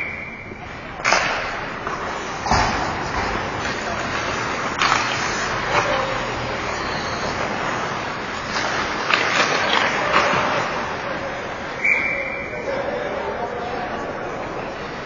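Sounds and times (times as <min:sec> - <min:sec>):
hockey sticks and puck clacking: 0:00.0 - 0:12.3
distant voices: 0:00.0 - 0:15.0
skates on ice: 0:01.1 - 0:11.4
short high whistle tone: 0:11.8 - 0:12.6.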